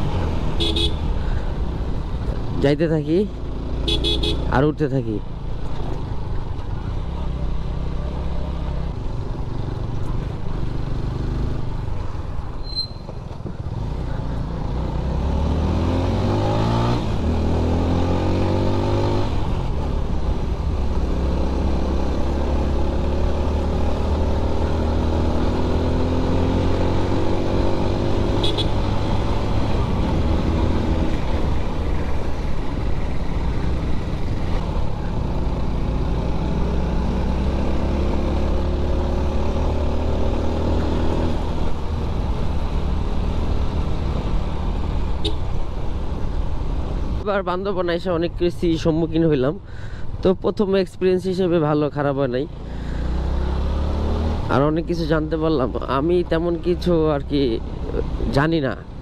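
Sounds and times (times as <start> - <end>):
motorcycle engine revving: 13.6 - 47.2, 52.6 - 58.4.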